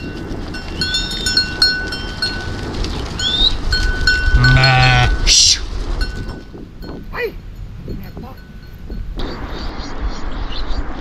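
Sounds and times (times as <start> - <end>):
animal bells clinking: 0.0 - 5.3, 5.9 - 9.2
animal bleat: 4.3 - 5.3.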